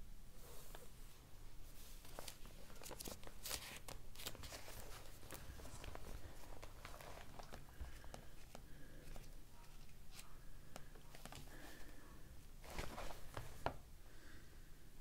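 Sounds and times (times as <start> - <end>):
thin pages rustling: 1.7 - 11.8, 12.6 - 13.8.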